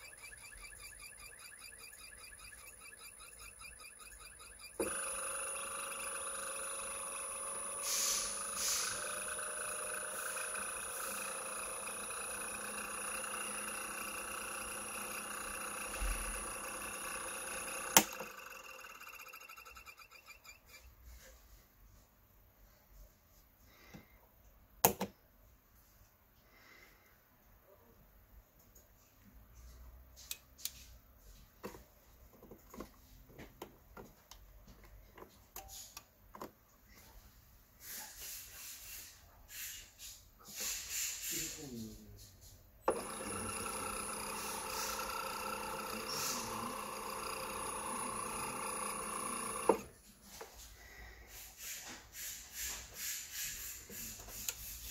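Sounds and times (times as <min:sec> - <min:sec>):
electric motor hum and whine: 0:00.0 - 0:20.4, 0:42.9 - 0:50.0
short breathy hiss: 0:07.8 - 0:08.9.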